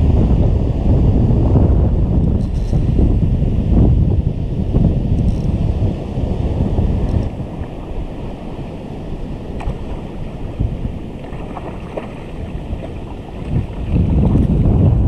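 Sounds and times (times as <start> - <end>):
wind buffeting microphone: 0.0 - 15.0
small waves washing: 5.4 - 14.8.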